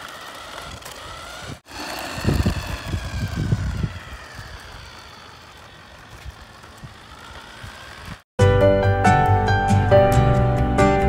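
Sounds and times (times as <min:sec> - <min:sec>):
toy truck electric motor whining: 0:00.0 - 0:08.3.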